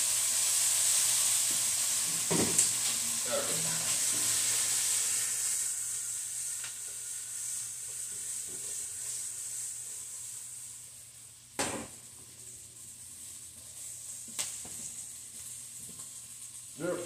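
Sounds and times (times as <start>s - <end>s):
steak sizzling in a skillet: 0.0s - 17.0s
pan knocking on stove: 2.2s - 2.6s.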